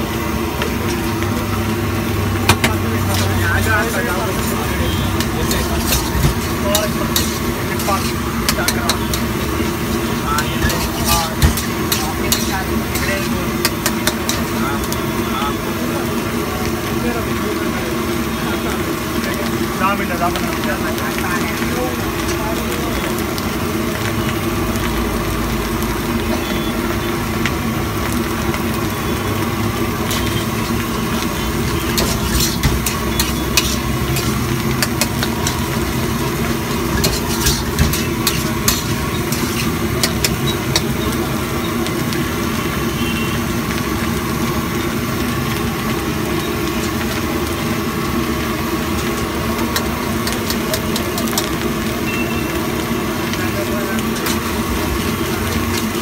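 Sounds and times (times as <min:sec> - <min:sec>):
steady mechanical hum: 0:00.0 - 0:56.0
metal spatula scraping a wok: 0:03.0 - 0:14.6, 0:30.0 - 0:41.1, 0:54.1 - 0:56.0.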